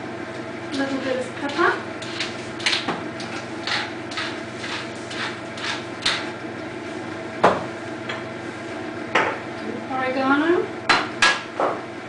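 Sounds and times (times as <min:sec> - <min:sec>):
pepper mill grinding: 0:01.5 - 0:06.2.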